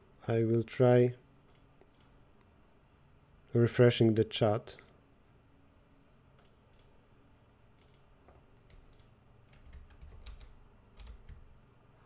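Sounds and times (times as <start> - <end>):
computer keyboard keystrokes: 7.8 - 8.1, 8.7 - 11.4.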